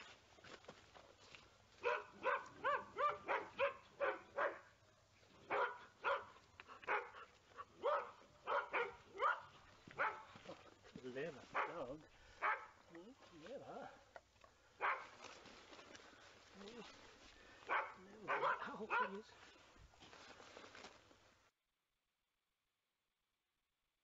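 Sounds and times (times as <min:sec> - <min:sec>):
dog barking: 0:01.8 - 0:04.8, 0:05.4 - 0:10.4, 0:11.5 - 0:12.8, 0:14.8 - 0:15.2, 0:17.7 - 0:19.3.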